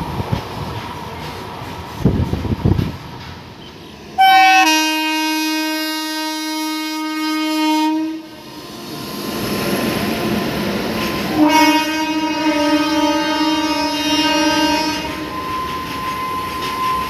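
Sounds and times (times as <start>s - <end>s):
express train rumbling: 0.0s - 17.0s
locomotive horn blast: 4.2s - 8.7s, 11.3s - 15.3s.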